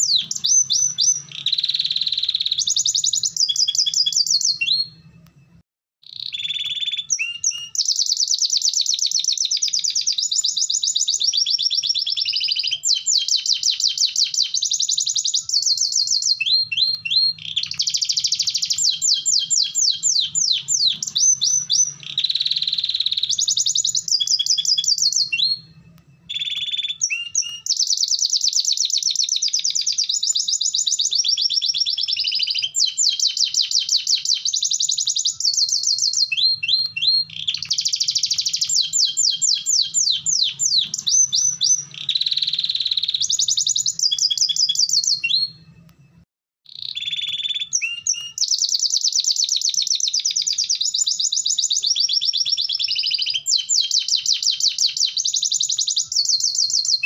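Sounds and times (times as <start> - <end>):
canary singing trills: 0.0 - 5.4, 6.0 - 45.9, 46.7 - 57.0.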